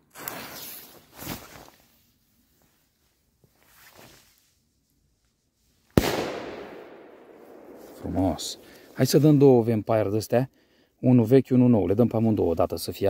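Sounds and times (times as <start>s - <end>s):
firecracker bang: 6.0s - 9.0s.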